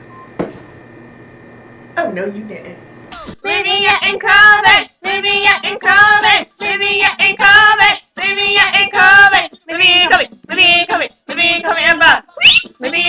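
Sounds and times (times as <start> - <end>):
child singing: 3.4 - 13.0.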